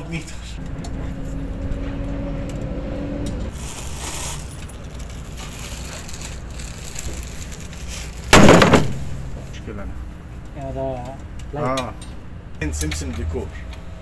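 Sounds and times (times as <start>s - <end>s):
plastic bag rustling: 3.5s - 9.4s.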